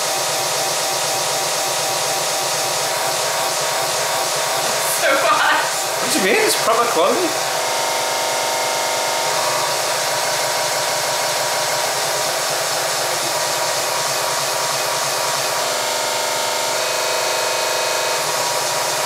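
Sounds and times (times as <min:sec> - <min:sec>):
loud rushing noise: 0:04.2 - 0:07.8.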